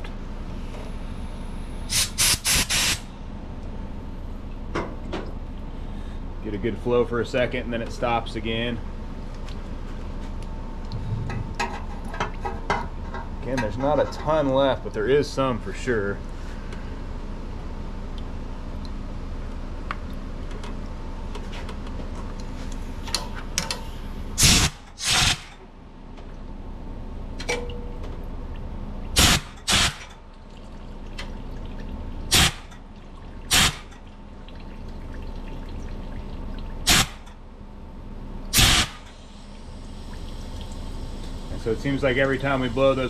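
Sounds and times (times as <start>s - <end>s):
compressed air hisses: 1.9s - 3.1s, 38.6s - 39.6s.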